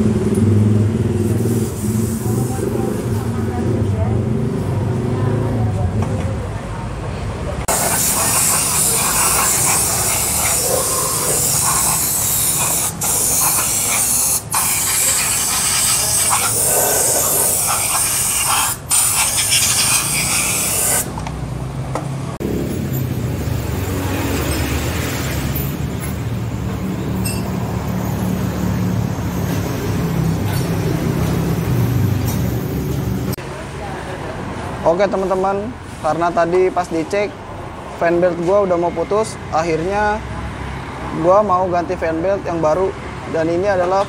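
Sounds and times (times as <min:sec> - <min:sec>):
traffic noise: 0:00.0 - 0:44.0
vehicle engines humming: 0:00.0 - 0:44.0
spray gun hissing: 0:07.7 - 0:21.1.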